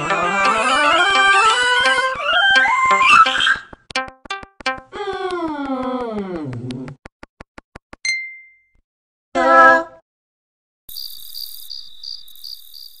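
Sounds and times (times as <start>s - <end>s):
crickets chirping: 10.9s - 13.0s.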